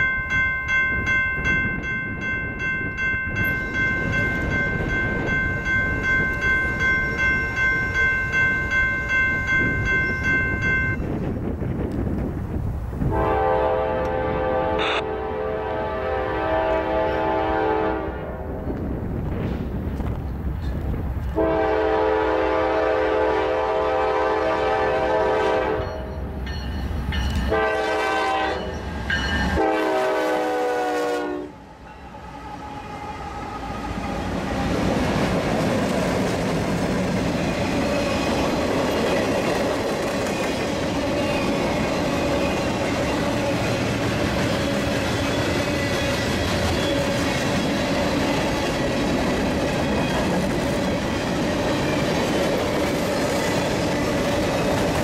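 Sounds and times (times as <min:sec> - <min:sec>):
freight train wheels on rails: 0:00.0 - 0:55.0
locomotive air horn blasts: 0:13.1 - 0:18.4, 0:21.4 - 0:26.1, 0:27.5 - 0:28.8, 0:29.5 - 0:31.6.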